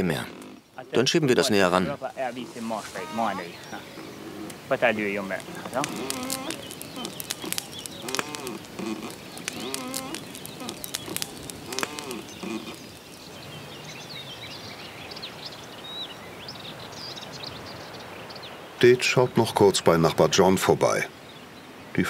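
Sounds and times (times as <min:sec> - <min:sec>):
dove cooing: 0:00.0 - 0:13.0
wood fire crackling: 0:00.0 - 0:14.4
small birds chirping: 0:00.0 - 0:22.0.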